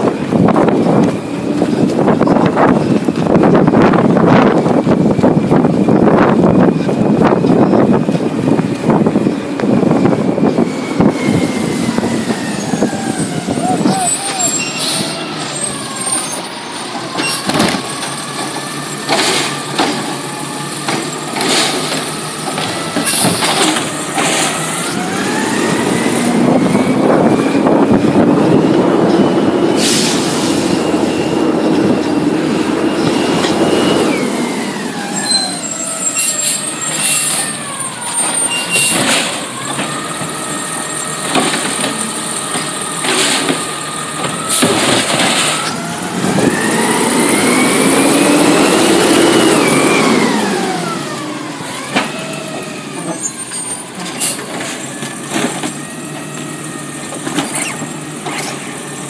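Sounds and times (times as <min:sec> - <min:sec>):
garbage truck engine revving: 0:00.0 - 0:59.0
clanks of automated arm and carts: 0:13.9 - 0:25.8, 0:30.8 - 0:48.8, 0:49.5 - 0:59.0.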